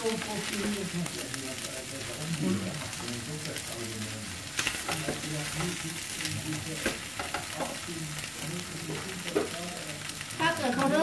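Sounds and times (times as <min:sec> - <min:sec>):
food sizzling in a frying pan: 0:00.0 - 0:11.0
utensils scraping and tapping pan: 0:04.5 - 0:09.6.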